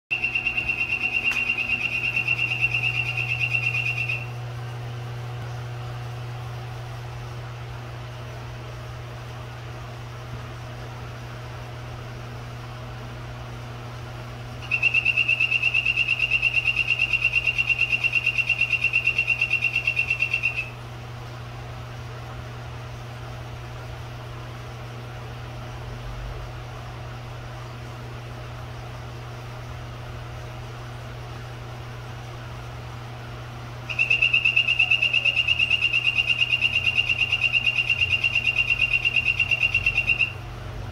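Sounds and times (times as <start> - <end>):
frog buzzy trill: 0.1 - 4.3, 14.6 - 20.7, 33.9 - 40.4.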